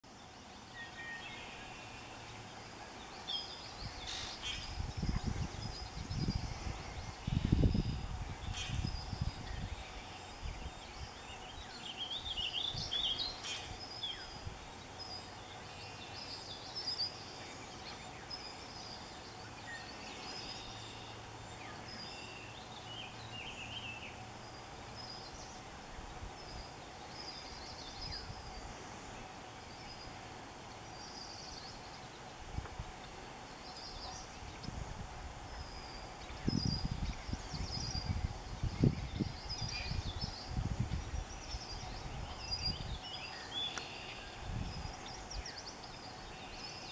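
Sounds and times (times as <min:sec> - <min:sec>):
small birds chirping: 0:00.0 - 0:46.9
steady low hum: 0:00.0 - 0:46.9
low microphone rumble: 0:02.3 - 0:16.6, 0:31.8 - 0:43.6.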